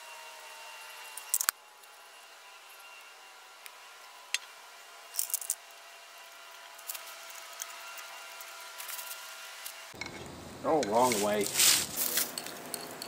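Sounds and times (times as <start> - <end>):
light metal clinks and taps: 12.2 - 13.0.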